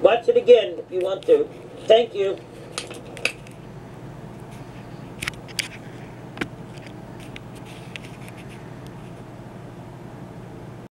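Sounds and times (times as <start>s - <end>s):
low electrical hum and hiss: 0.0s - 10.9s
small scrapes: 7.2s - 9.2s.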